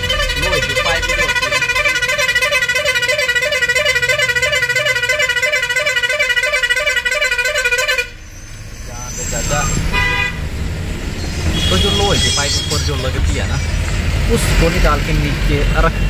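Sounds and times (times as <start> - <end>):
warbling vehicle horn: 0.0 - 10.5, 11.5 - 12.9
truck engine drone: 0.0 - 16.0.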